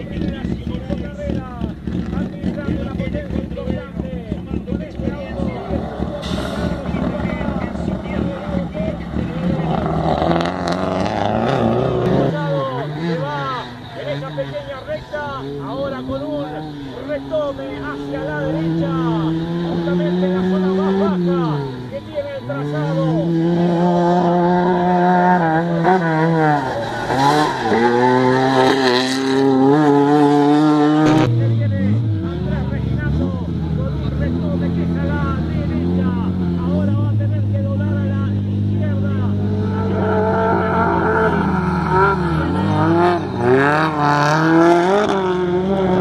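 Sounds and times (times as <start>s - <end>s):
rally car engine revving: 0.0s - 46.0s
hiss of dirt and gravel: 6.2s - 6.8s.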